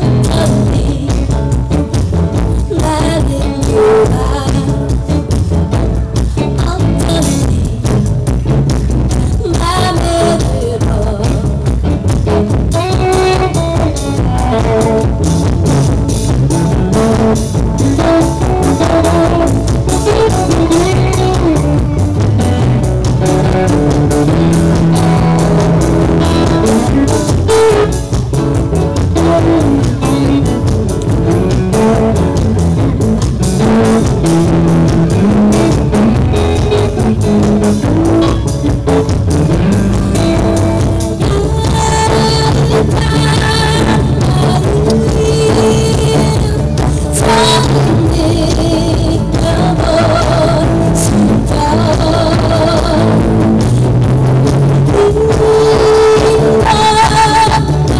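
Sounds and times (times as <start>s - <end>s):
live band playing instrumental: 0.0s - 57.9s.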